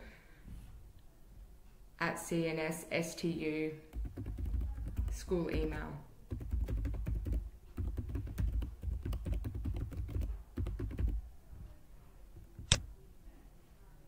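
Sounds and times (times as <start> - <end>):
keyboard typing: 3.9 - 11.2
sharp keyboard click: 3.9 - 11.2, 12.6 - 12.9.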